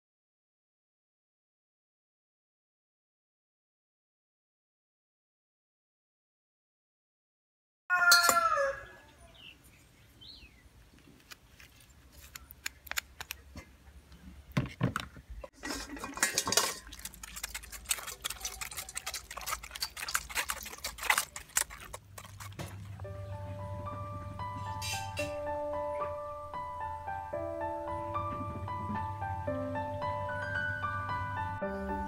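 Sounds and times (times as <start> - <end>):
spoon scraping a wire-mesh strainer: 15.6 - 23.0
soft piano music: 23.0 - 32.0.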